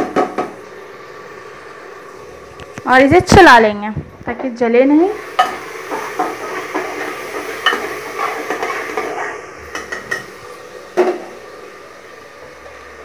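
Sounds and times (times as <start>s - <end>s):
light sizzle: 0.0s - 13.0s
spatula scraping a pot: 5.4s - 10.0s.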